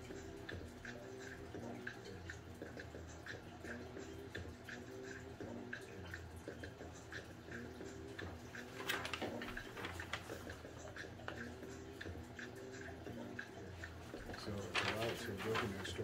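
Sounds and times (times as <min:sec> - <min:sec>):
paper rustling and crackling: 0:08.6 - 0:10.6, 0:14.1 - 0:16.0.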